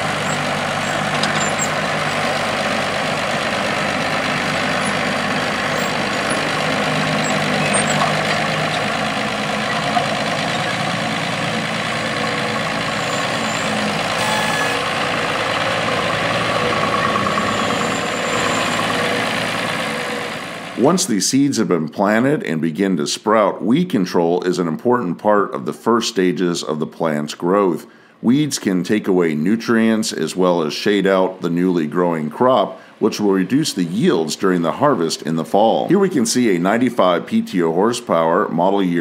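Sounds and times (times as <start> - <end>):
tractor engine running under load: 0.0 - 21.0, 30.4 - 37.4.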